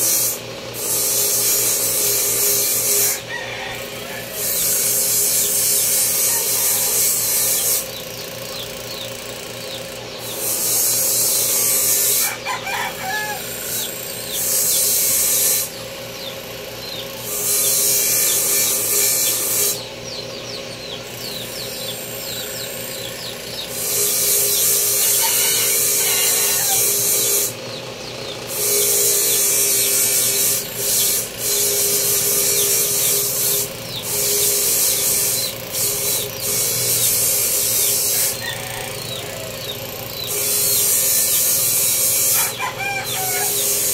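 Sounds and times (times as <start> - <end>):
power grinder humming: 0.0 - 43.9
rooster crowing: 3.0 - 4.8, 5.9 - 7.6, 11.6 - 14.1, 24.4 - 27.5, 38.1 - 39.9, 42.2 - 43.9.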